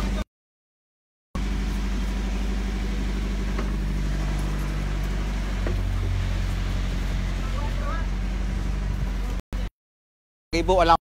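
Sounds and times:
boat engine idling: 1.4s - 9.7s.

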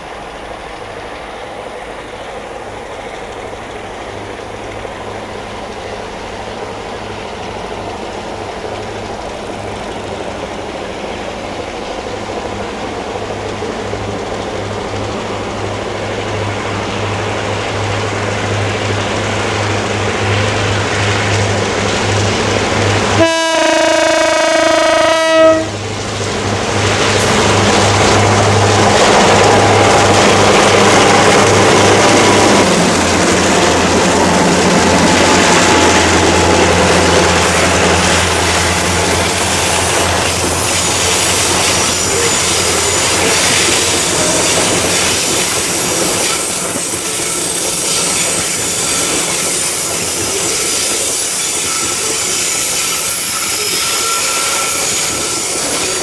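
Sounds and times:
train wagons rolling past: 0.0s - 56.0s
locomotive horn blast: 23.2s - 25.8s
locomotive engines running: 25.8s - 56.0s
wheel squeal: 40.2s - 56.0s.

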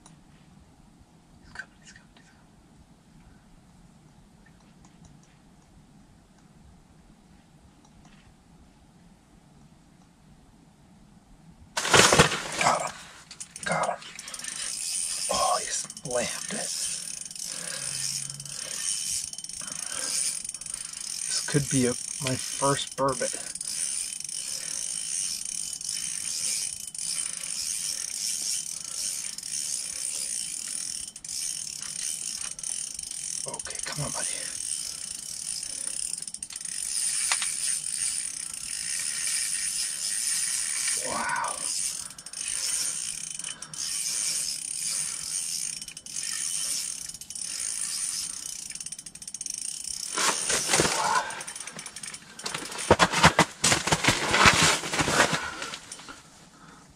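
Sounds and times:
fishing reel whirring: 13.4s - 52.9s.

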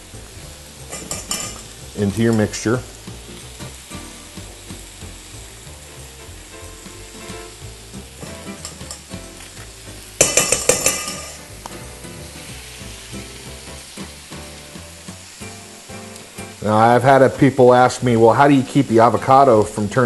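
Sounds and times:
spoon knocking on metal bowl: 10.2s - 11.4s.

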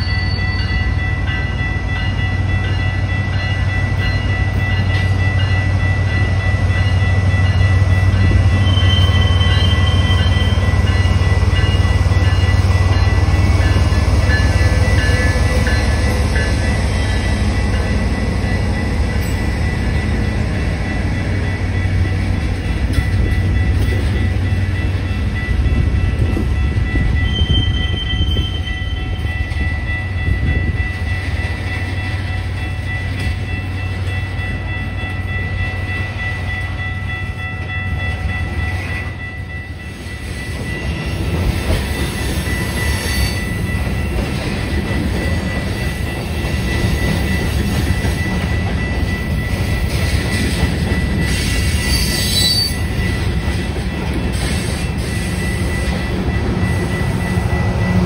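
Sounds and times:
diesel locomotive engine: 0.0s - 58.0s
freight train rolling rumble: 0.0s - 58.0s
wheel squeal: 51.2s - 53.1s.

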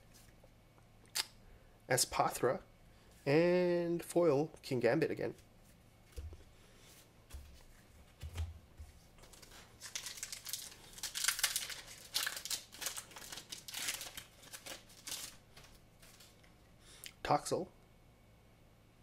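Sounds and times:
foil wrapper crinkling: 9.1s - 16.6s
foil wrapper tearing: 9.2s - 16.5s.

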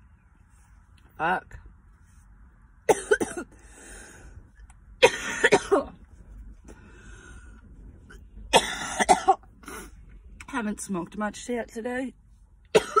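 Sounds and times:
woman coughing: 2.9s - 3.6s, 5.0s - 6.0s, 8.5s - 9.4s, 12.7s - 13.0s
breathy exhales: 3.6s - 4.6s, 6.6s - 7.8s.

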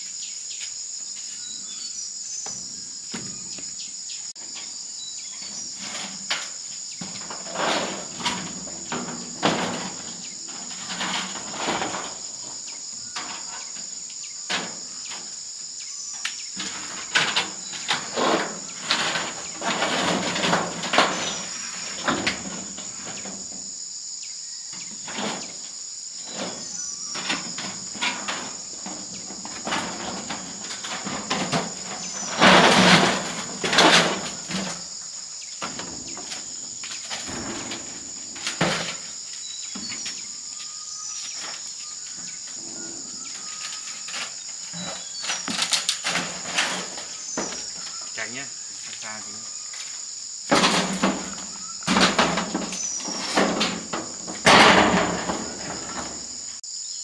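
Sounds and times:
insects chirring: 0.0s - 57.0s
knocks and clatters: 5.8s - 13.9s, 14.5s - 15.3s, 16.6s - 23.7s, 24.8s - 34.9s, 35.6s - 40.2s, 43.3s - 48.0s, 50.5s - 56.6s.

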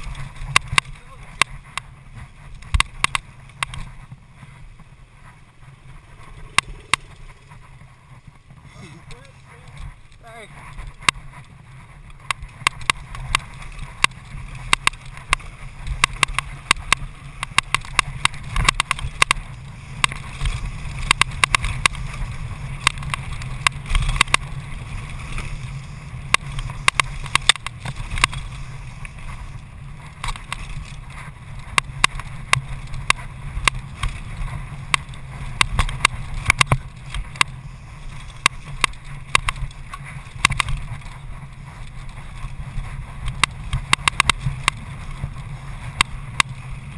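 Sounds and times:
bike clicks and rattles: 0.0s - 46.9s
bike tyre rumble: 0.0s - 46.9s
wind rush: 3.8s - 14.6s.

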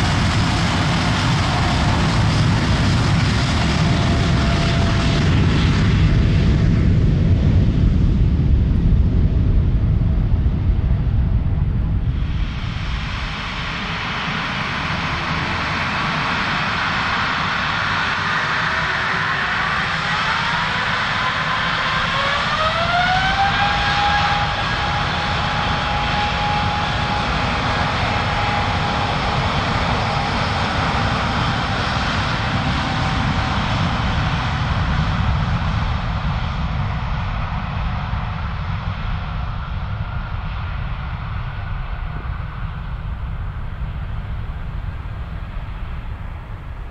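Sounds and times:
jet engine spooling up: 12.0s - 46.9s.

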